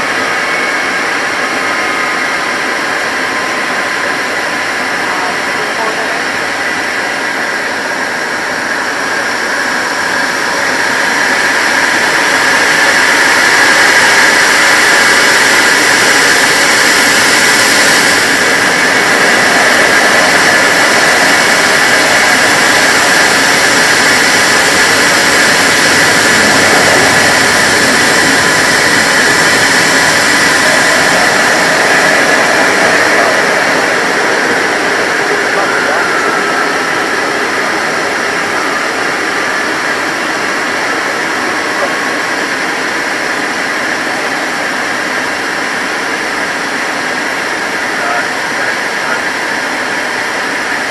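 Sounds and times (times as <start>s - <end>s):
high whine: 0.0s - 50.9s
jet engines running: 0.0s - 50.9s.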